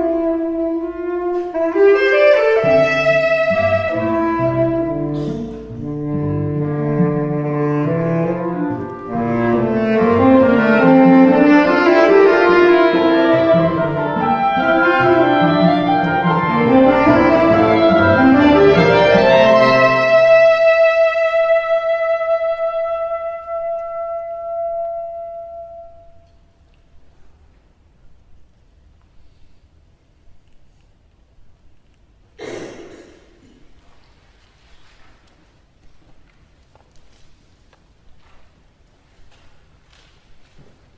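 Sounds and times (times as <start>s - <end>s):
chamber ensemble of strings and winds: 0.0s - 26.1s
tenor saxophone: 0.0s - 26.5s.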